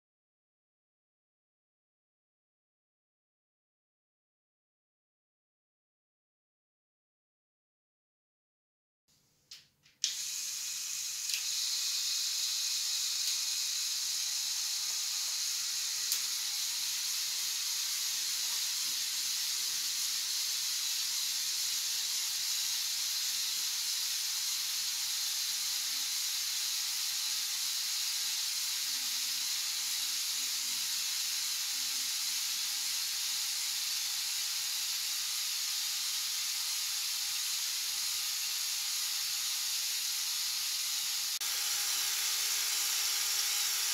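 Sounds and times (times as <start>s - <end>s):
toy motors whirring: 10.0s - 43.9s
click: 11.3s - 11.5s.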